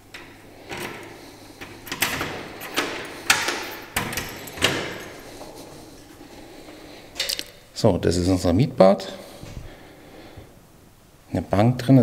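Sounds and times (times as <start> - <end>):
door handle and latch clicks: 0.0 - 5.3.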